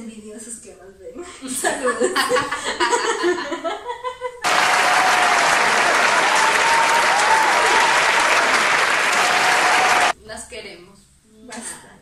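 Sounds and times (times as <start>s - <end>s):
large crowd applauding: 4.4s - 10.2s.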